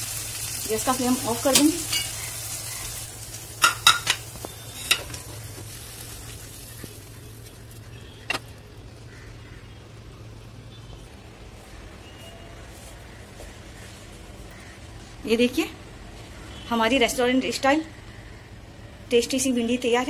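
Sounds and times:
oil sizzling: 0.0s - 10.6s.

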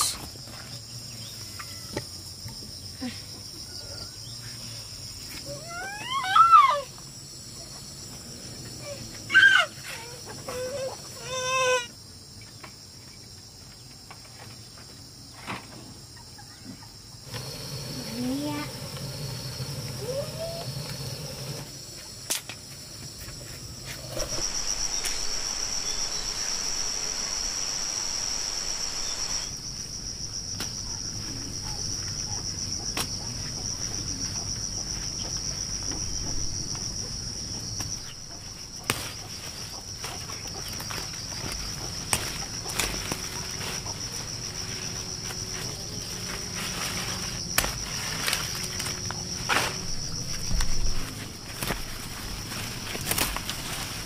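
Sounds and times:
insects chirring: 0.0s - 54.0s
rushing hiss: 17.2s - 21.9s, 23.8s - 29.8s.

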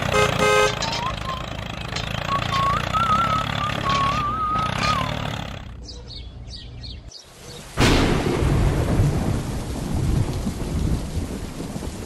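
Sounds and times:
steady rain: 7.3s - 12.0s
loud thunderclap: 7.8s - 12.0s
low rumbles of thunder: 7.8s - 12.0s.

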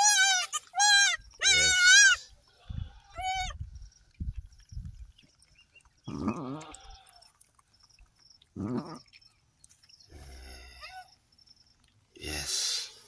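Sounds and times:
goat bleating: 0.0s - 3.6s, 6.1s - 7.2s.

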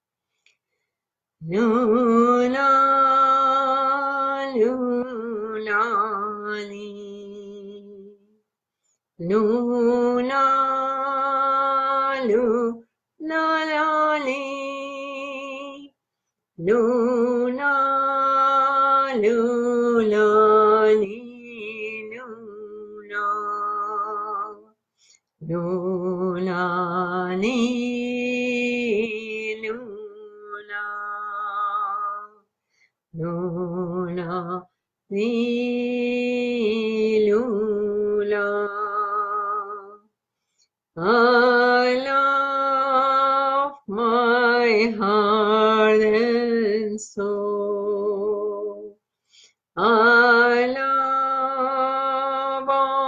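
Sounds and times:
woman singing a mantra: 1.4s - 8.3s, 9.2s - 15.9s, 16.6s - 24.7s, 25.4s - 32.4s, 33.2s - 40.0s, 41.0s - 49.0s, 49.8s - 53.0s
woman chanting: 1.4s - 8.4s, 9.2s - 15.9s, 16.6s - 24.7s, 25.4s - 32.4s, 33.2s - 40.0s, 41.0s - 49.0s, 49.8s - 53.0s.

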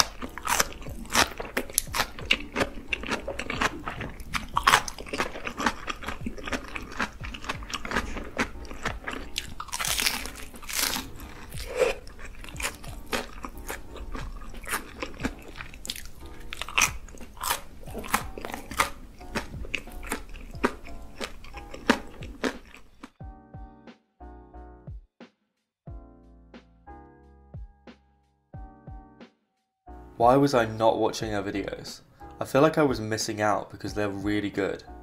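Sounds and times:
crunchy cucumber chewing: 0.0s - 23.2s
soft background music: 0.0s - 25.0s, 25.9s - 35.0s.

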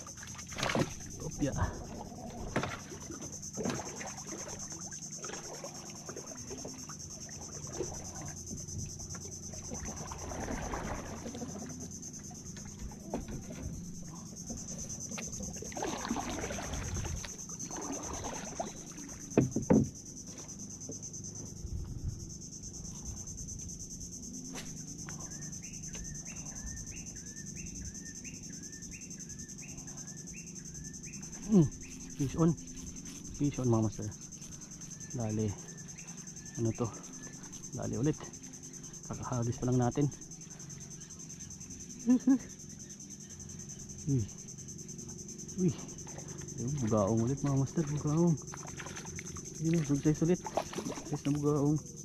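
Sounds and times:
insects droning: 0.0s - 52.0s
water sloshing around canoe: 0.0s - 52.0s
knock against boat: 19.2s - 20.0s.

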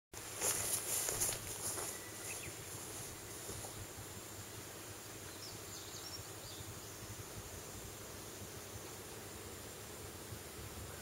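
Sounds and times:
steady outdoor hiss: 0.2s - 11.0s
faint bird chirps: 1.6s - 3.8s.

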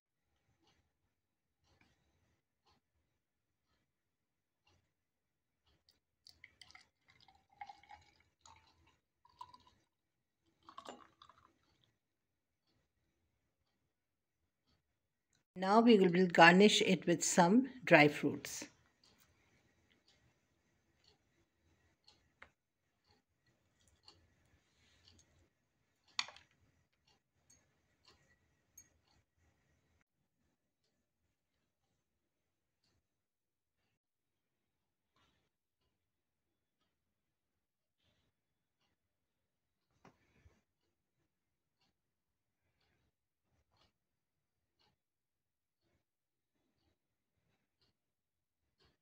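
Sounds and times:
liquid pouring into a glass: 6.3s - 9.9s, 10.6s - 11.8s
faint clicks and light taps: 18.6s - 29.3s.

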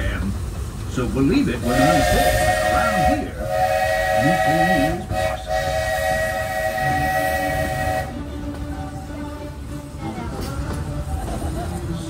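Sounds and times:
steam locomotive whistle blasts: 1.6s - 8.3s.

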